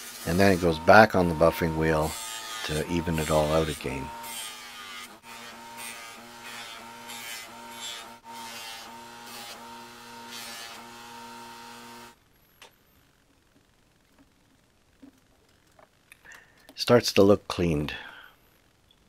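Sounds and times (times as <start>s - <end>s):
bench grinder motor hum: 0.0s - 12.2s
metal rasping against buffing wheel: 0.3s - 4.4s.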